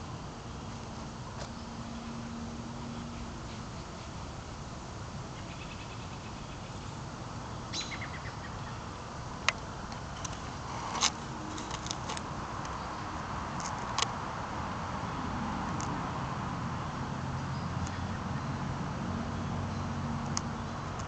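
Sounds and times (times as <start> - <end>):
steady background hiss: 0.0 - 21.0
birds chirping: 5.4 - 9.1.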